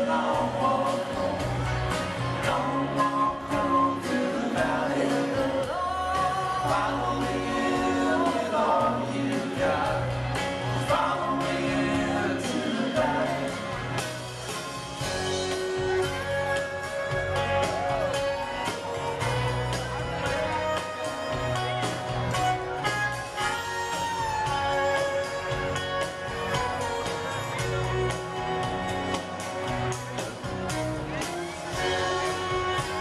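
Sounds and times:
lead vocal singing: 0.0s - 14.1s
live band playing a song: 0.0s - 33.0s.

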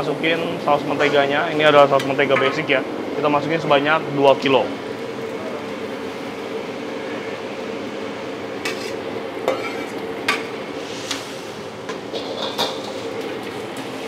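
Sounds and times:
spoon scraping metal pot: 8.7s - 10.0s
wok hissing on stove: 10.5s - 14.0s.

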